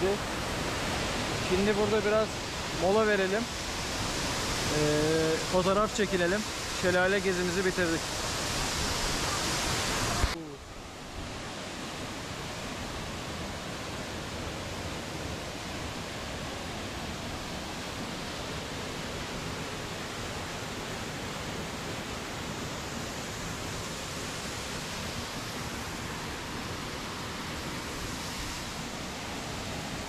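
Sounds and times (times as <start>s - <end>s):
waterfall rushing: 0.0s - 30.0s.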